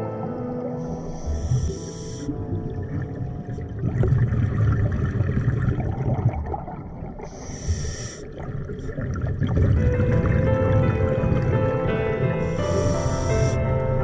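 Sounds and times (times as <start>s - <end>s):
regulator hissing inhale: 0.8s - 2.4s, 7.2s - 8.4s, 12.3s - 13.7s
underwater exhaled bubbles: 1.3s - 14.0s.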